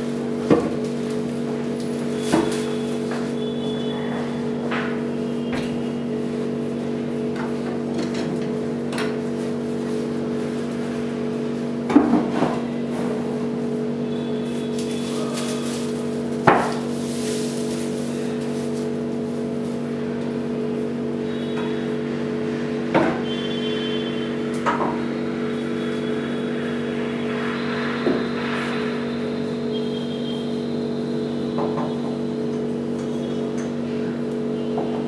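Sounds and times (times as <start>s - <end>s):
steady low hum: 12.6s - 32.6s.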